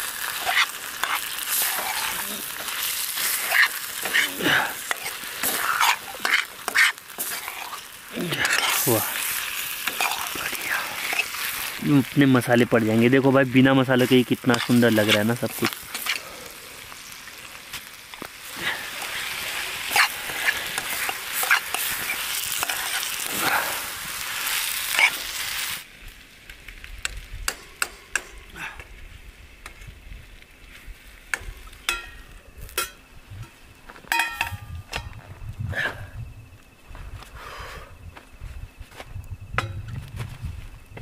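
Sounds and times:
chicken sizzling in a pan: 0.0 - 25.9
spoon stirring and scraping: 0.4 - 4.2, 4.8 - 11.4.

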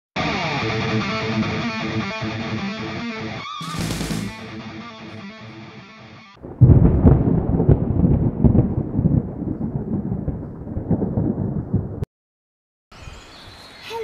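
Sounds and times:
quiet guitar music: 0.2 - 6.4
thunder rumbling: 6.4 - 12.1.

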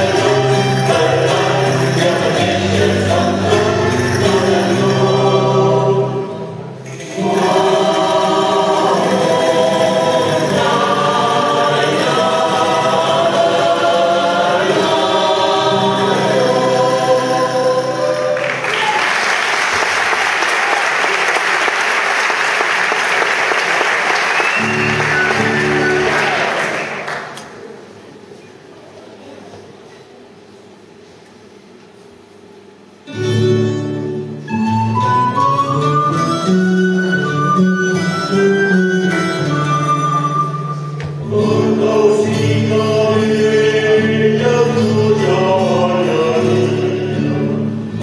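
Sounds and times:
audience applauding: 18.2 - 27.8.

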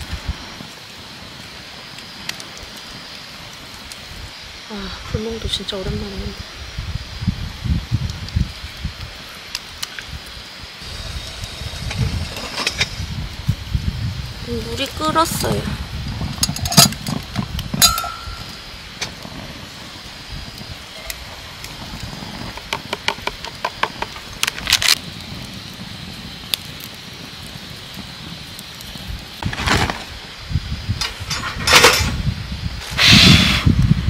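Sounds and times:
campfire crackling: 0.0 - 34.0
metal kettle and cup clinking: 17.8 - 18.5.

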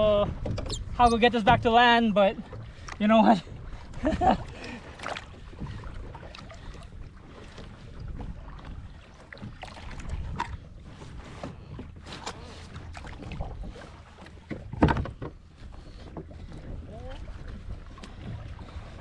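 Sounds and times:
water lapping against kayak hull: 0.0 - 19.0
wind rumbling on microphone: 3.4 - 13.8
brief splashes and knocks: 9.4 - 10.6, 14.4 - 15.4.

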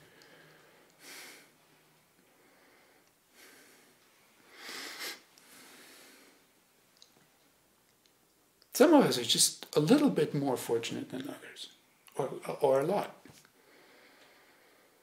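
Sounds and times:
man breathing: 0.0 - 6.5, 13.6 - 15.0.

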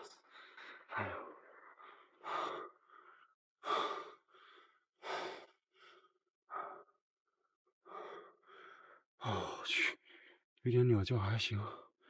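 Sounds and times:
man breathing hard: 0.4 - 7.0, 7.8 - 9.0.

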